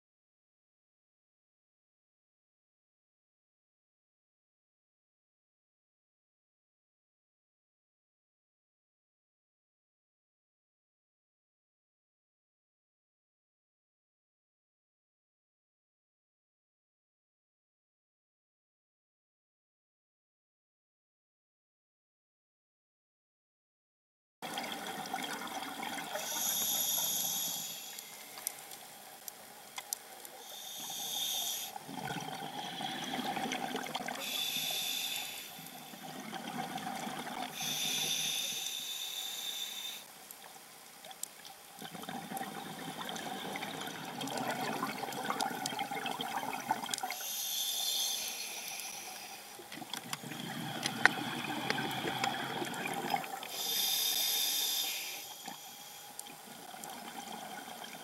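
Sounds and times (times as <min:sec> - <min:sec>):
diver breathing through regulator: 0:26.1 - 0:28.7, 0:30.4 - 0:36.2, 0:37.0 - 0:40.1, 0:47.1 - 0:49.6, 0:50.2 - 0:56.2
exhaled bubbles rushing: 0:31.9 - 0:34.2, 0:41.8 - 0:47.1, 0:50.3 - 0:53.5.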